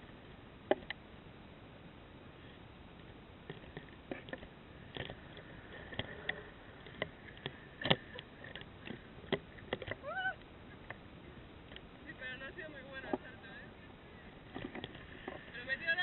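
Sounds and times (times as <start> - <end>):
low hiss: 0.0 - 16.0
clicks and light knocks of gear: 2.4 - 11.0, 14.5 - 15.5.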